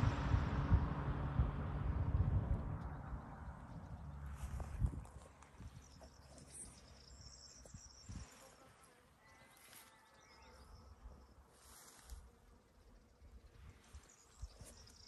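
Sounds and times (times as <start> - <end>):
low rumble: 0.0 - 6.1
insects chirping and buzzing: 5.6 - 15.0.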